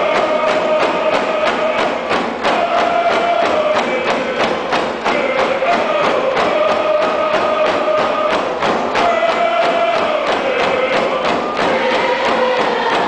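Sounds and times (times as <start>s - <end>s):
group singing in unison: 0.0s - 13.0s
hand drums beating: 0.0s - 13.0s.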